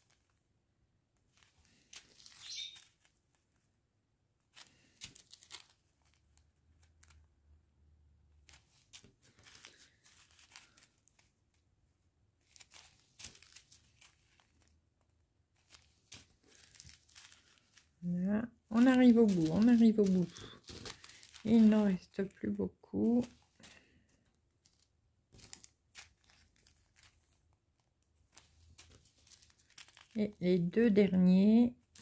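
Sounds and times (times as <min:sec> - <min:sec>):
plastic bags crinkling: 0:01.3 - 0:03.1, 0:04.5 - 0:07.2, 0:08.4 - 0:11.3, 0:12.4 - 0:14.8, 0:15.6 - 0:27.5, 0:28.3 - 0:30.8.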